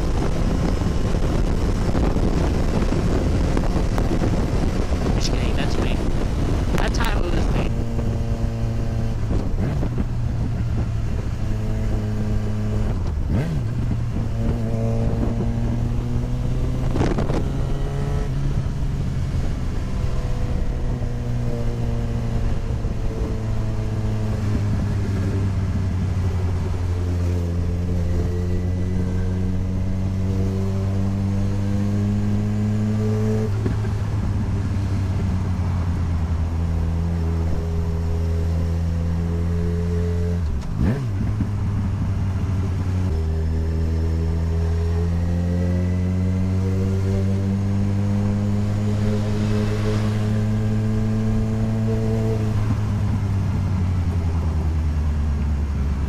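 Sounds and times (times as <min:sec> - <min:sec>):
motorcycle engine running: 0:00.0 - 0:56.0
wind noise: 0:00.0 - 0:56.0
short whooshes: 0:48.9 - 0:51.0.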